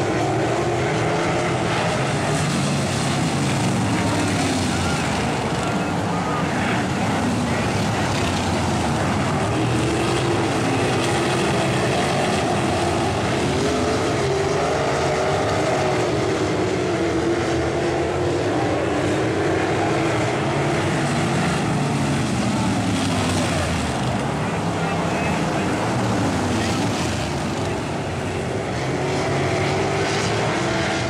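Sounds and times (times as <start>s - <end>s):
racing car engines: 0.0s - 31.0s.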